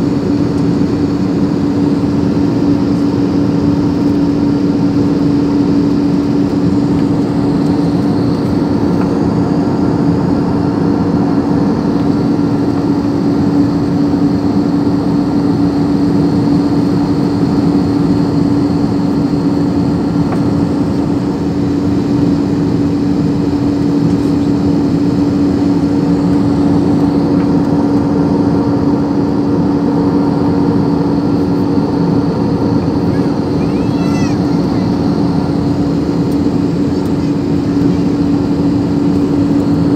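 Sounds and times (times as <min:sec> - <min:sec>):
airliner cabin engine roar: 0:00.0 - 0:39.9
steady low hum: 0:00.0 - 0:39.9.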